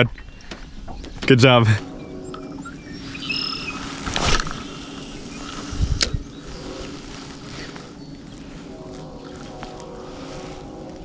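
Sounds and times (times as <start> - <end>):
fishing rod whoosh: 3.4 - 6.2.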